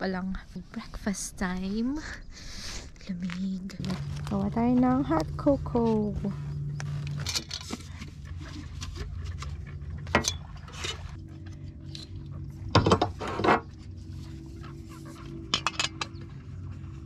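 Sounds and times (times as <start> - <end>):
steady low hum: 0.0 - 17.0
cookware and mugs clinking: 15.5 - 16.2.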